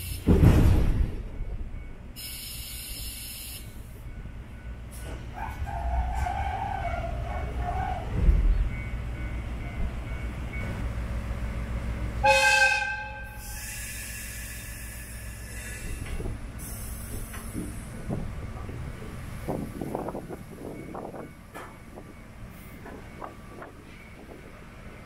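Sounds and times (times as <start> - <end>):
train engine rumble: 0.0 - 25.0
train horn blast: 12.2 - 13.8.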